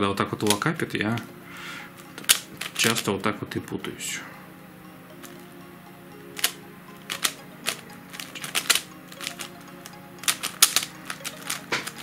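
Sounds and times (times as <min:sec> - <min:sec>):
plastic puzzle clicking: 0:00.4 - 0:01.3, 0:02.0 - 0:03.1, 0:06.4 - 0:12.0.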